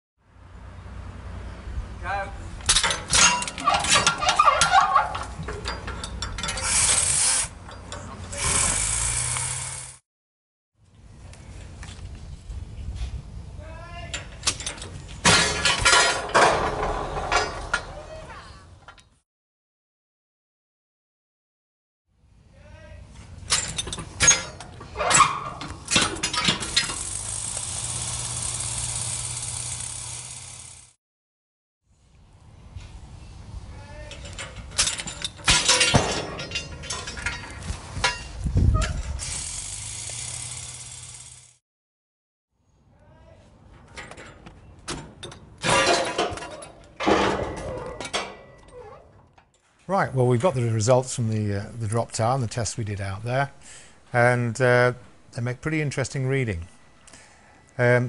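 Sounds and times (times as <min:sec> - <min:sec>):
steel rig clattering and clinking: 0:02.6 - 0:09.2, 0:14.1 - 0:18.0, 0:23.3 - 0:29.9, 0:34.1 - 0:39.4, 0:43.8 - 0:49.7
metallic clicks and squeaks: 0:02.7 - 0:08.8, 0:23.4 - 0:27.1, 0:34.0 - 0:39.2, 0:43.8 - 0:49.7
sharp metallic clank: 0:34.2 - 0:38.3.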